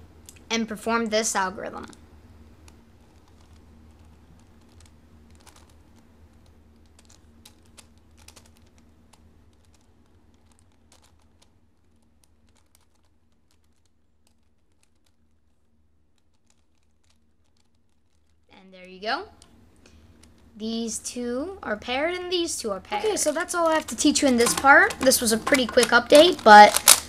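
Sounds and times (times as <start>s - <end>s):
plastic puzzle cube clicks: 2.6s - 15.2s, 23.2s - 27.0s.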